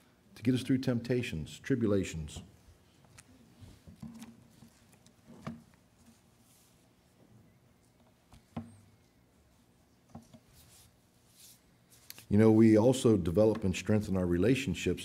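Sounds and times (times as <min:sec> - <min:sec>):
faint clicks and rustles: 0:02.6 - 0:12.3.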